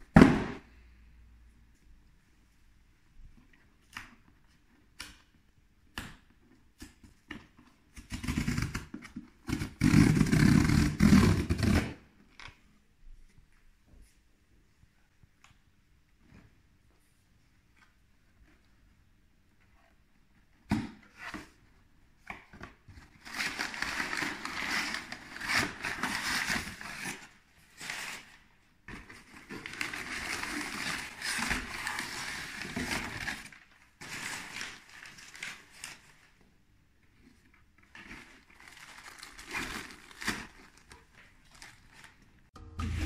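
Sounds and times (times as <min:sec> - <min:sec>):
packing paper crumpling: 0:38.1 - 0:42.2.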